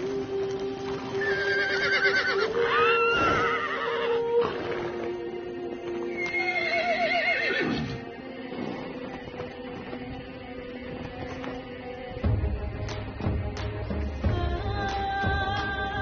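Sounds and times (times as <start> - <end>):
music with sustained notes: 0.0 - 16.0
horses whinnying: 1.0 - 5.2, 6.1 - 9.5.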